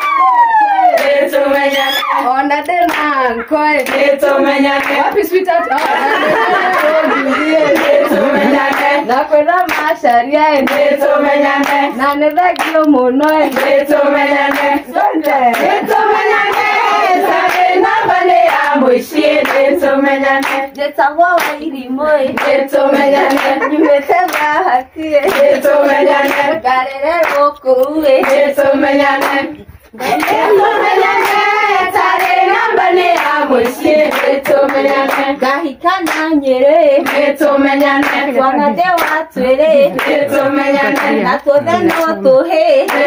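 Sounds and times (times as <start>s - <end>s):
women singing together: 0.0s - 43.0s
hands clapping in time: 0.8s - 7.0s, 7.7s - 10.9s, 11.6s - 13.8s, 14.5s - 15.9s, 20.4s - 21.7s, 23.2s - 24.5s, 27.2s - 28.4s, 29.2s - 31.5s, 33.1s - 36.4s, 37.0s - 42.2s.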